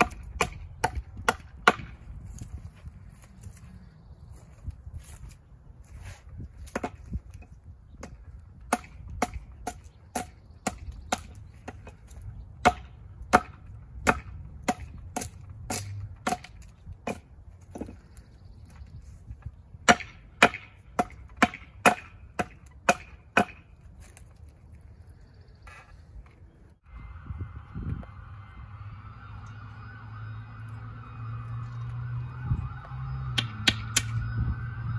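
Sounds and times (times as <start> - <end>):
hatchet chopping wood: 0.0 - 2.0, 6.6 - 7.0, 8.0 - 18.0, 19.8 - 23.8, 33.4 - 34.2.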